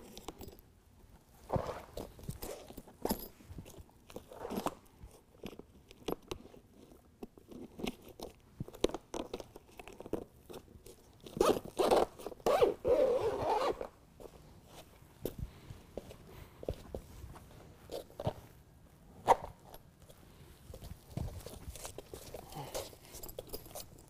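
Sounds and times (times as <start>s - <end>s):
zipper being pulled: 1.5s - 2.8s, 4.2s - 4.9s, 11.3s - 13.9s.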